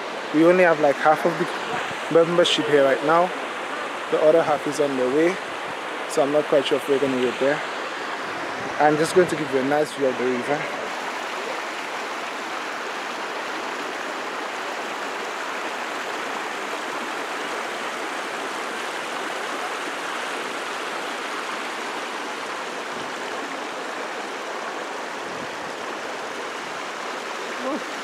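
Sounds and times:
river rushing over stones: 0:00.0 - 0:28.0.

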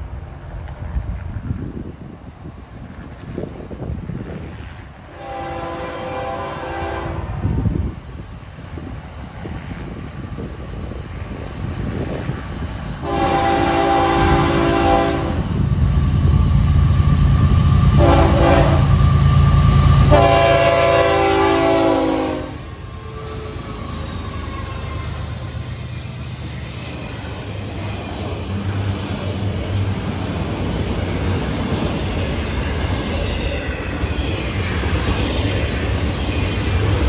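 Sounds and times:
rail cars rolling by: 0:00.0 - 0:37.0
diesel locomotive rumble: 0:03.1 - 0:37.0
train air horn blasts: 0:05.1 - 0:07.5, 0:13.0 - 0:15.5, 0:17.9 - 0:19.0, 0:20.0 - 0:23.5.

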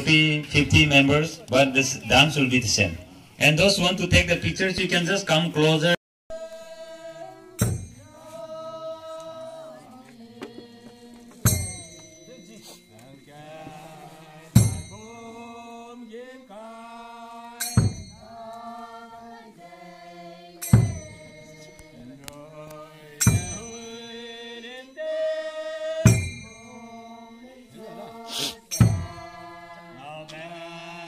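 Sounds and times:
group chanting: 0:06.3 - 0:12.6, 0:13.2 - 0:31.0.

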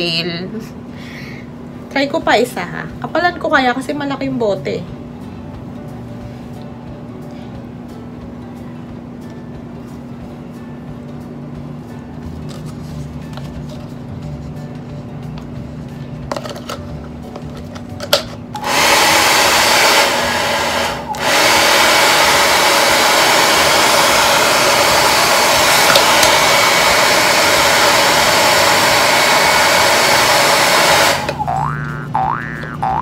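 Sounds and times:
hair dryer blowing air: 0:18.6 - 0:31.6.

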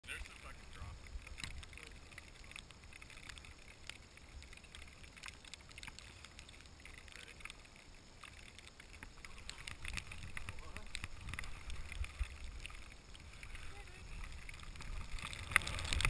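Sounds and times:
clothing and gear rustles: 0:08.3 - 0:16.0
faint wind rumble on microphone: 0:09.2 - 0:16.0.

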